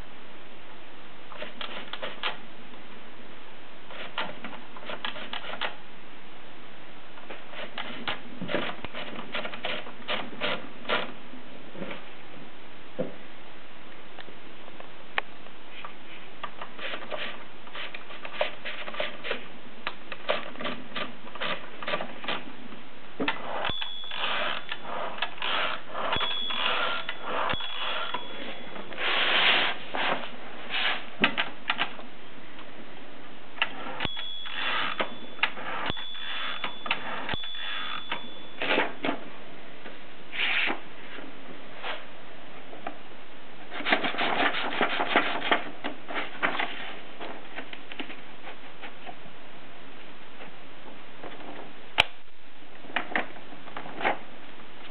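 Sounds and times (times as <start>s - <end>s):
typewriter clicking and ratcheting: 1.4s - 2.4s, 3.9s - 5.8s, 20.1s - 22.4s
typewriter carriage bell: 23.5s - 28.8s, 33.9s - 39.0s.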